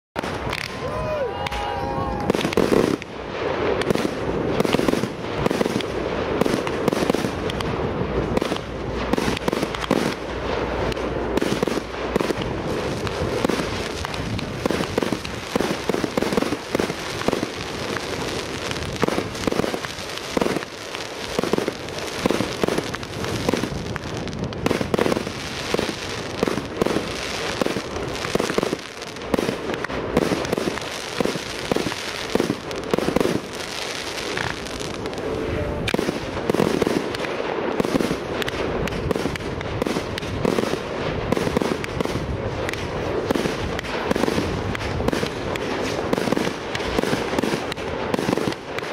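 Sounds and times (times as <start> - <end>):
firework barrage: 0.2 - 48.9.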